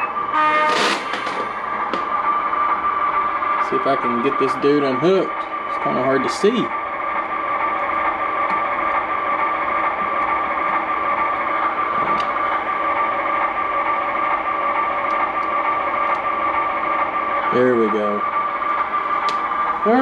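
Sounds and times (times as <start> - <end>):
model locomotive engine hum: 0.0 - 20.0.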